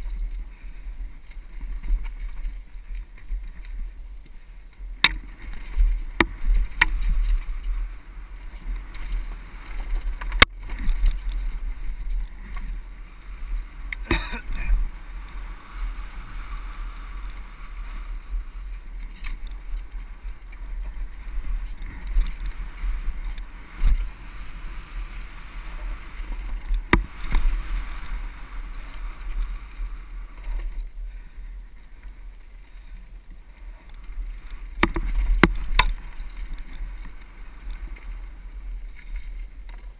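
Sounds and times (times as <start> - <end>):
bike knocks and rattles: 14.0 - 14.8, 34.7 - 37.2.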